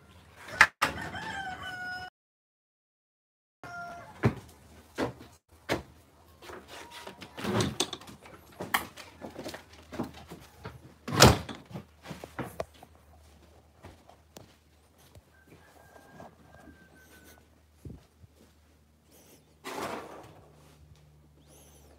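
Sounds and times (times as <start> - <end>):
phone rubbing against shirt: 15.8 - 17.4.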